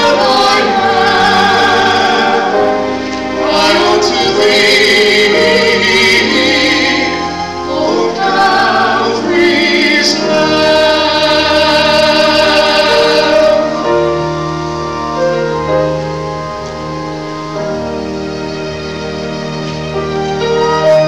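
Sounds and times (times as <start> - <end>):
male soloist singing: 0.0 - 13.7
church choir singing: 0.0 - 21.0
sustained accompaniment: 0.0 - 21.0.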